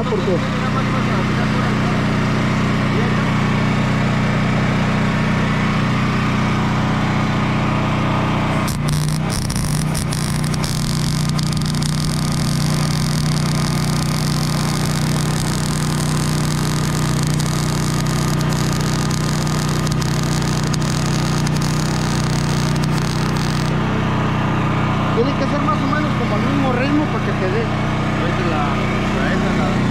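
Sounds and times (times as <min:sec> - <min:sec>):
welding machine hum: 0:00.0 - 0:29.9
welding arc crackling hiss: 0:08.6 - 0:23.8.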